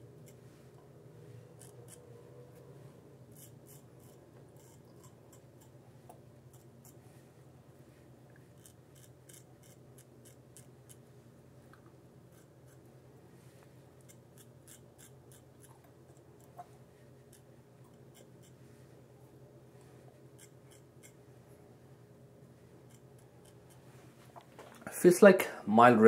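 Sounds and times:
razor scraping stubble: 0:00.2 - 0:02.7, 0:03.3 - 0:07.2, 0:08.4 - 0:11.1, 0:12.3 - 0:12.9, 0:14.0 - 0:16.7, 0:17.3 - 0:18.6, 0:20.3 - 0:21.2, 0:22.8 - 0:24.0.

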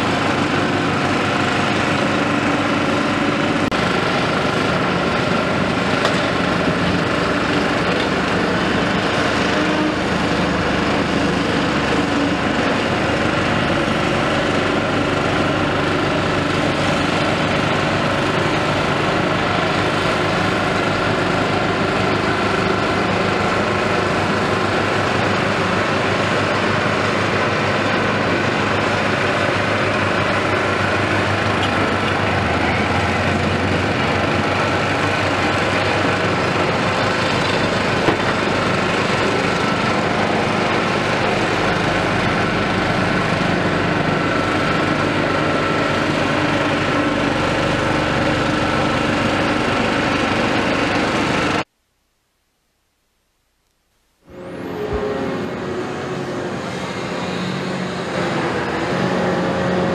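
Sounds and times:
excavator diesel engine running: 0:00.0 - 0:51.7, 0:54.2 - 0:59.9
high hydraulic whine: 0:00.0 - 0:51.7, 0:54.2 - 0:59.9.

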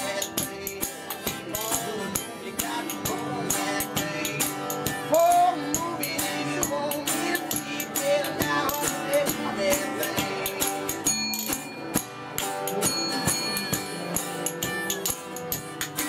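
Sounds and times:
acoustic guitars strummed: 0:00.0 - 0:16.0
spoons clacking rhythm: 0:00.0 - 0:16.0
harmonica notes: 0:10.9 - 0:15.8.

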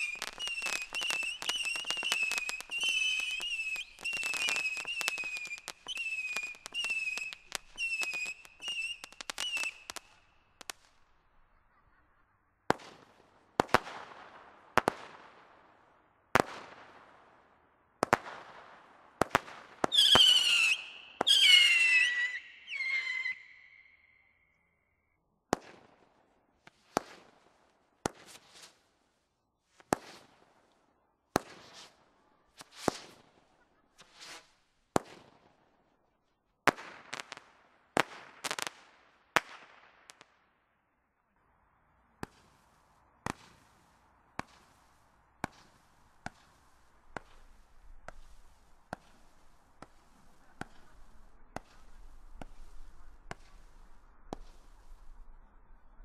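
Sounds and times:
firework bangs: 0:18.0 - 0:23.7, 0:42.2 - 0:55.3.

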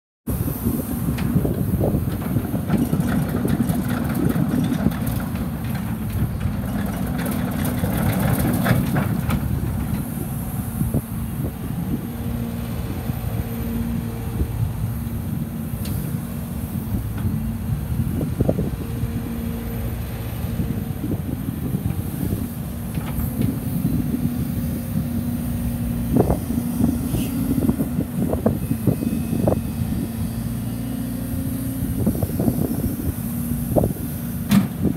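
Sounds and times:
excavator diesel engine running: 0:00.3 - 0:34.9
hydraulic whine: 0:00.3 - 0:34.9.

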